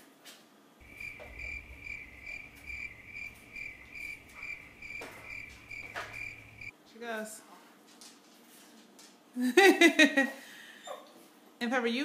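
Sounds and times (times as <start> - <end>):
electronic alarm beeping: 0.8 - 6.7.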